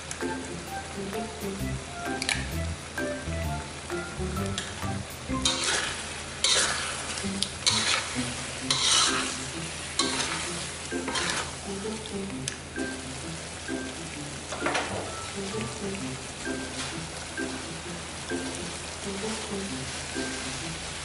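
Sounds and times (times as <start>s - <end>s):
curry paste sizzling in pan: 0.4s - 14.4s, 15.1s - 21.0s
metal spoon stirring: 5.4s - 9.4s, 10.0s - 11.6s.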